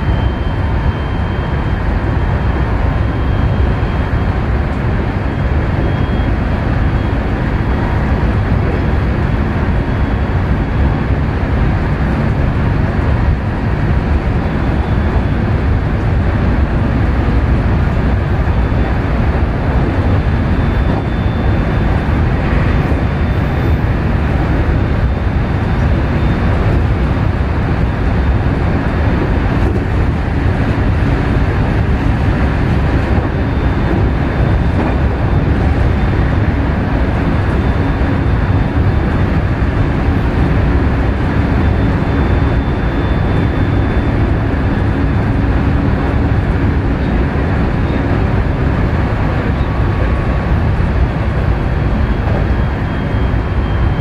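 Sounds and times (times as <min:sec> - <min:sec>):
train wheels rumbling on rails: 0:00.0 - 0:54.0.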